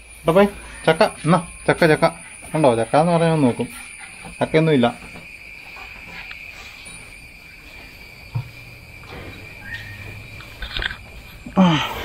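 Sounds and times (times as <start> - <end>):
insects chirring: 0.0 - 12.0
water buffalo calling: 9.4 - 12.0.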